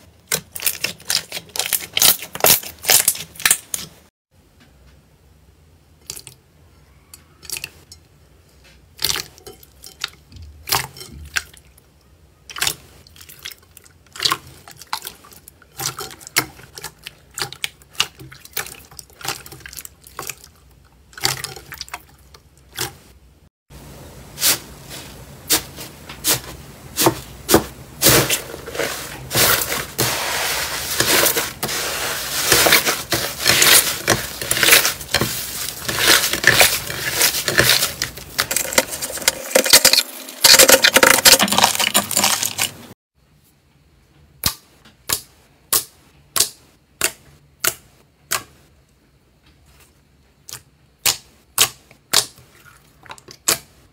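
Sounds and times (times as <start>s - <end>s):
sticky slime crackling: 0.2s - 4.1s, 25.5s - 42.9s.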